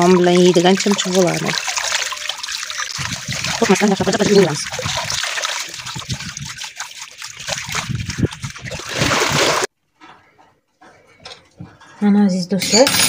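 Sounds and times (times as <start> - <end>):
hose water splashing into tub: 0.0 - 9.7.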